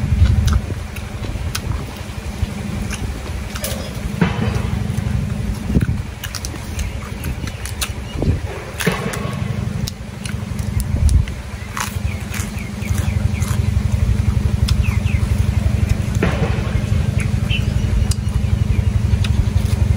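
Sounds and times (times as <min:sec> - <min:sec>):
low pulsing rumble: 0:00.0 - 0:19.9
man chewing crunchy lettuce: 0:00.0 - 0:19.9.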